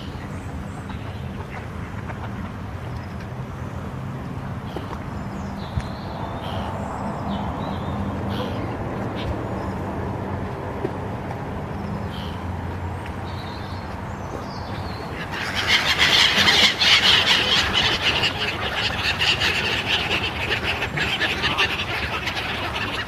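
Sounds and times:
gulls squealing and squawking: 15.0s - 23.0s.

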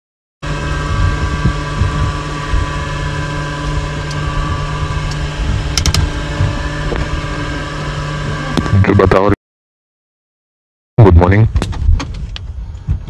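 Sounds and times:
low rumble: 0.4s - 9.2s
aircraft machine hum and whine: 0.4s - 9.4s.

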